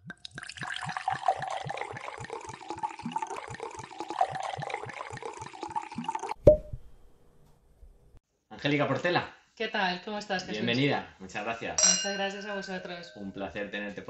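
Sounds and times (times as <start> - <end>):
wine glugging into glass: 0.2 - 6.7.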